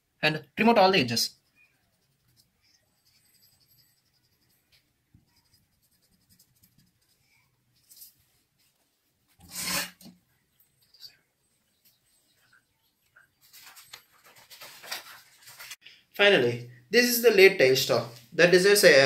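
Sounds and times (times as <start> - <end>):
pencil scratching on paper: 1.4 - 7.4, 9.4 - 10.1.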